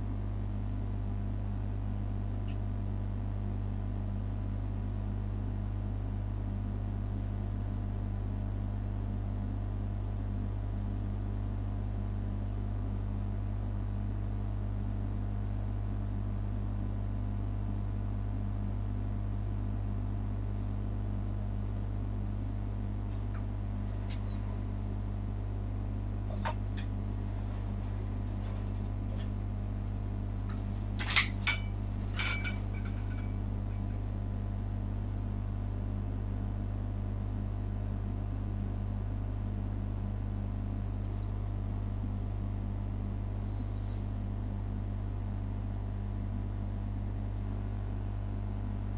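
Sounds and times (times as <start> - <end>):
low room hum: 0.0 - 48.9.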